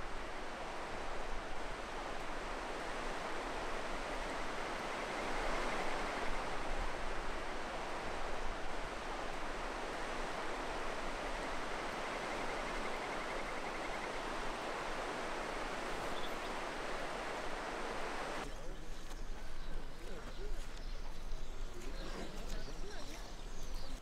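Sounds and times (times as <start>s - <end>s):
river water rushing: 0.0s - 18.5s.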